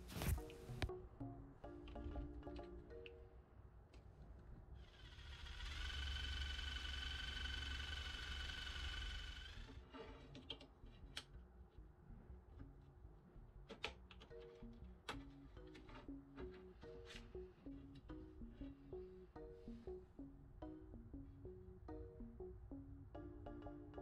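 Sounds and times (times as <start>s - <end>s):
cordless drill whining: 4.9s - 9.8s.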